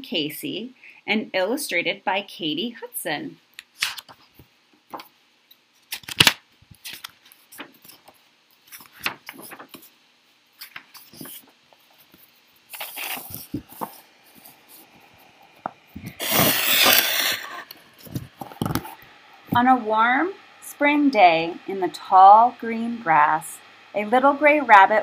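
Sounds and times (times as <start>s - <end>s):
paper rustling: 3.8s - 5.1s, 5.7s - 19.0s
book pages turning: 3.8s - 5.2s, 5.8s - 9.9s, 10.5s - 19.0s
paper sliding: 6.8s - 9.9s, 10.6s - 19.0s.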